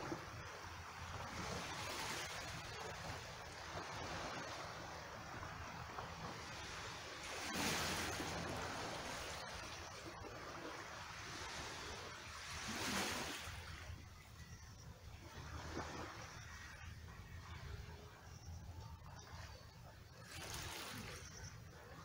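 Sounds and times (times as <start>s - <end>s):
small waves washing onto rocky shore: 0.0s - 13.9s.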